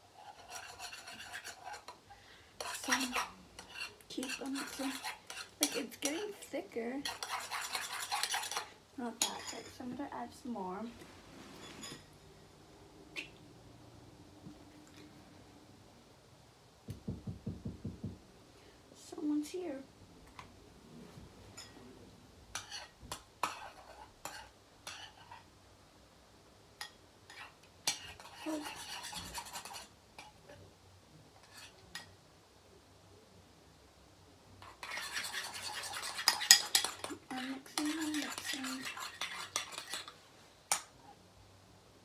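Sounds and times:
spoon stirring in a bowl: 0.0 - 10.4, 11.5 - 12.2, 21.5 - 21.9, 22.5 - 25.5, 26.8 - 30.6, 31.4 - 32.1, 34.6 - 41.2.

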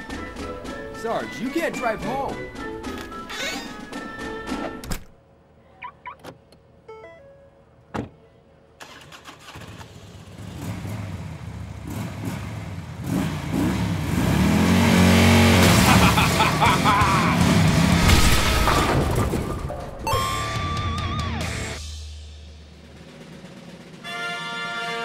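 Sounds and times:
car engine starting and revving: 8.8 - 18.6.

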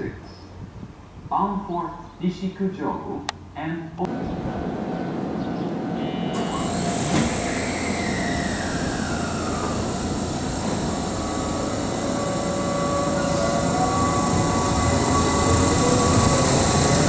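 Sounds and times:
electric train motor whine: 4.1 - 17.0
wheels rumbling on rail: 4.1 - 17.0.

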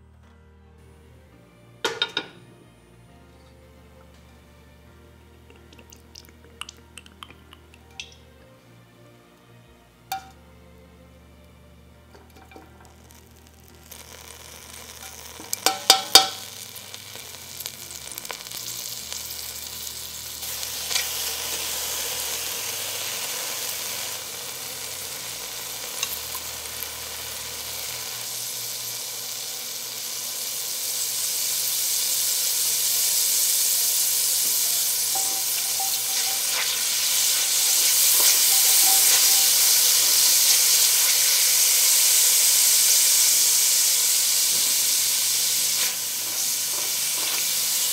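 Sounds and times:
garlic sizzling in hot oil: 10.1 - 10.4, 12.1 - 47.9.

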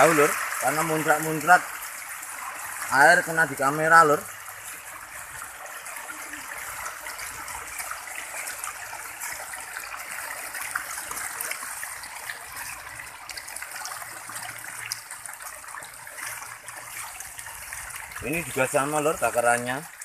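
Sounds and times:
fish thrashing and splashing: 4.3 - 18.7.

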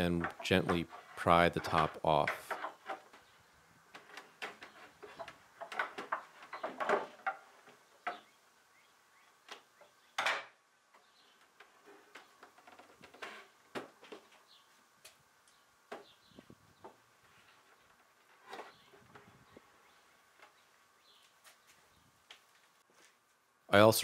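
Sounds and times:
wooden box knocking and creaking: 3.9 - 8.3.

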